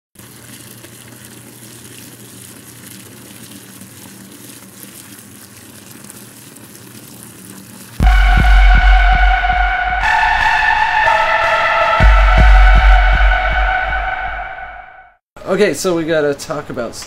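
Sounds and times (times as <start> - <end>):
electronic music with heavy bass: 8.0 - 15.0.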